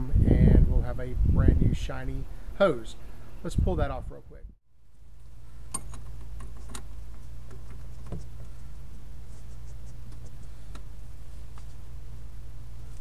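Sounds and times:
steady low hum: 0:04.2 - 0:13.0.

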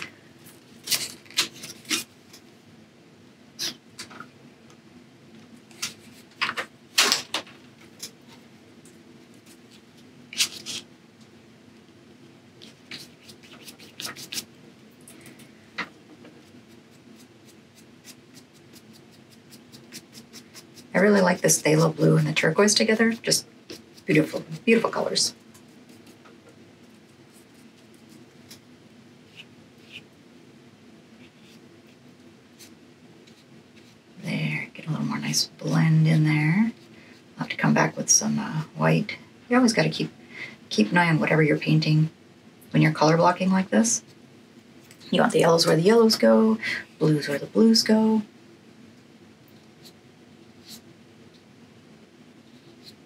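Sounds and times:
low steady hum: 0:00.0 - 0:53.0
paintbrush strokes on paper: 0:16.4 - 0:26.2, 0:26.8 - 0:30.2, 0:31.1 - 0:34.2, 0:49.5 - 0:50.9, 0:52.3 - 0:53.0.

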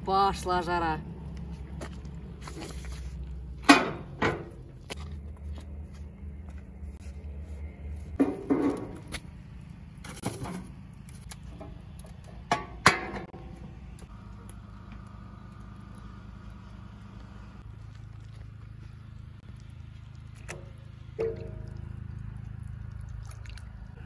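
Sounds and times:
low steady rumble: 0:00.0 - 0:24.0
steel stove door clanking shut: 0:03.7 - 0:04.5
steel lid set down: 0:20.5 - 0:21.8.

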